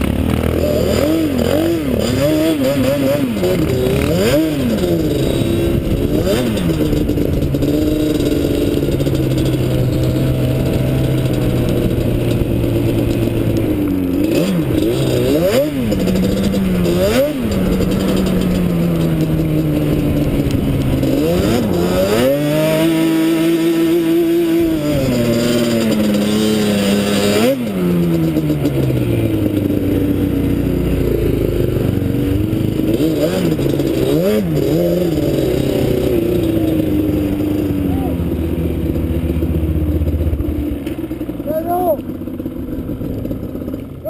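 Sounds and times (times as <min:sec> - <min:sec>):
quad engine revving: 0:00.0 - 0:44.0.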